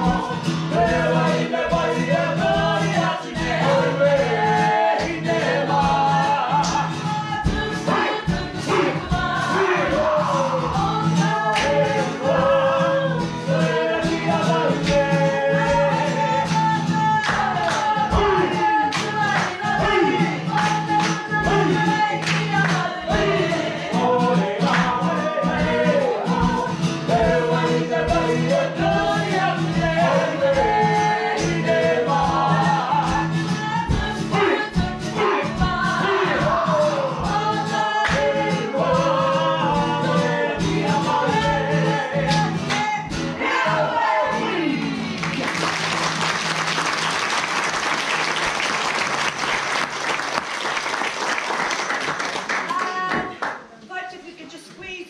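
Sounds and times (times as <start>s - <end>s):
group singing together: 0.0s - 52.0s
audience applauding: 45.1s - 53.7s.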